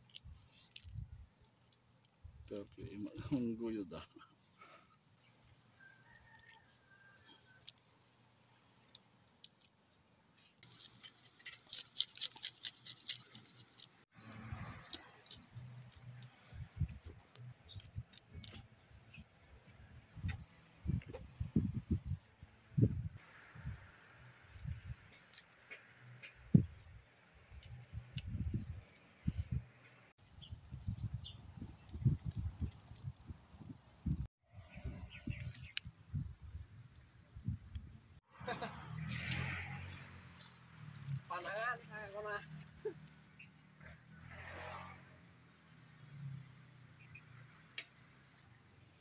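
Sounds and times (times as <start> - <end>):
crackly rustling: 0.0 - 6.8
bird chirping: 12.4 - 32.6, 45.2 - 49.0.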